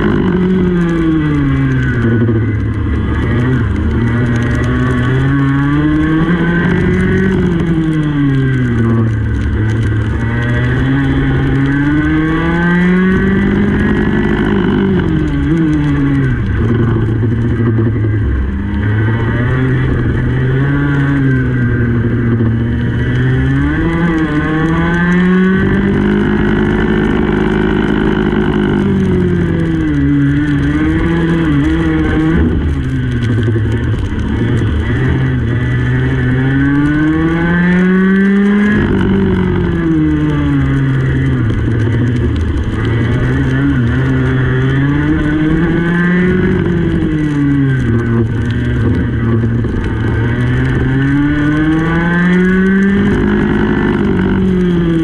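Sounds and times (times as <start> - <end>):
racing kart engine revving: 0.0 - 55.0.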